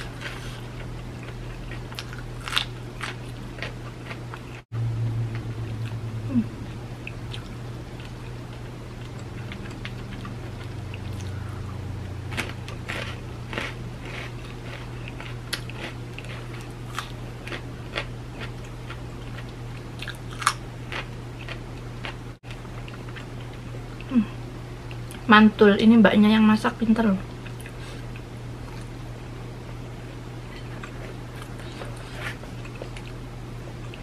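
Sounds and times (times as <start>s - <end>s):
cracker crunches: 0.0s - 4.6s
person chewing: 0.0s - 4.6s, 7.0s - 11.7s, 12.3s - 24.1s, 30.4s - 33.2s
steady low hum: 0.0s - 34.0s.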